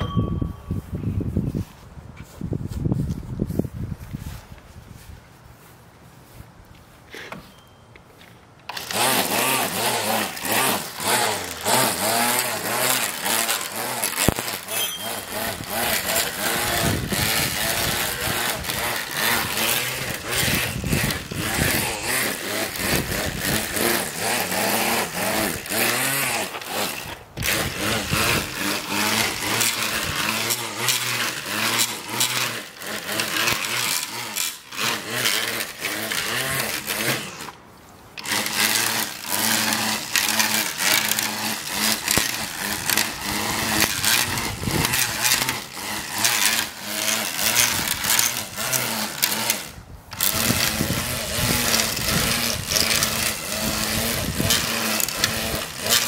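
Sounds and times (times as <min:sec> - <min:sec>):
string trimmer cutting grass: 0:00.0 - 0:56.0.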